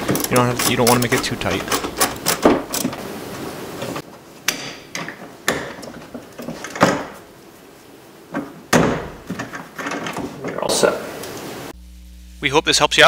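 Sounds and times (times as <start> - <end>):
sharp clicks and knocks: 0.0 - 3.1.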